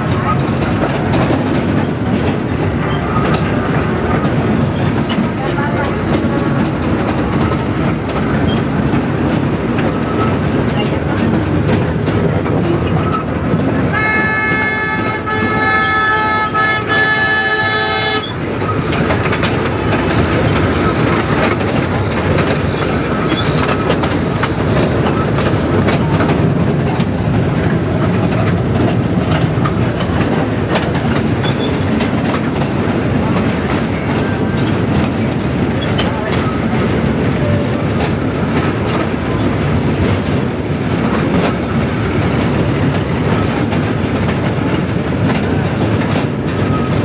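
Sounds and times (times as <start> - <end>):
train cars rumbling on rails: 0.0 - 47.0
wheels clacking over rail joints: 0.0 - 47.0
train horn chord: 13.9 - 18.3.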